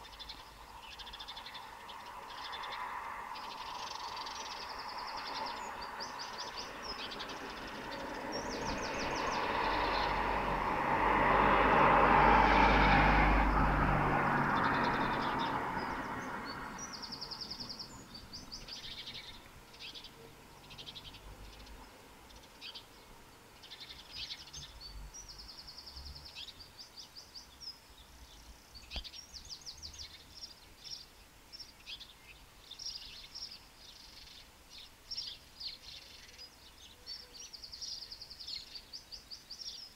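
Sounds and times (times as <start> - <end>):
birds singing and chirping: 0.0 - 10.9, 14.4 - 39.9
vehicle passing: 1.8 - 19.6.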